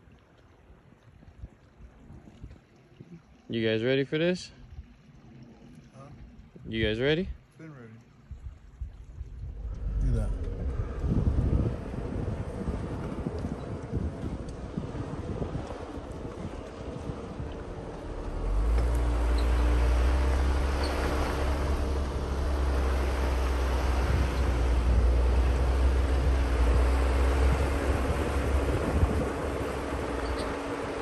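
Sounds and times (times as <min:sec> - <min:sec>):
deep rumble: 0:08.3 - 0:31.0
engine drone: 0:08.9 - 0:31.0
tyre and road noise: 0:09.4 - 0:31.0.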